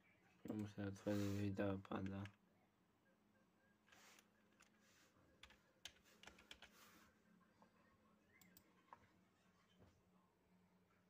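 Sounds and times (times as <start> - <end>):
faint low hum: 0.0 - 11.0
keyboard typing: 5.4 - 6.8.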